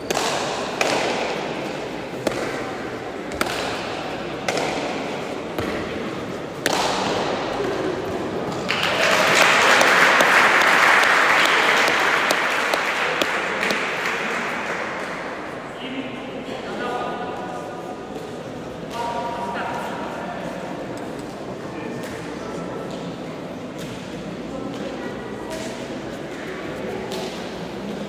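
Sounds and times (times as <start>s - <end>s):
spectators applauding: 8.6s - 15.1s.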